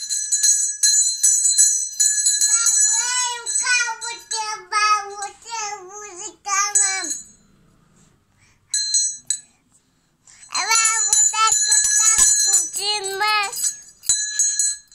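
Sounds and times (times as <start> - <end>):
small bell ringing: 0.0 - 7.8, 8.7 - 9.6, 10.3 - 14.9
small child sing-song voice: 2.5 - 7.3, 10.4 - 13.8.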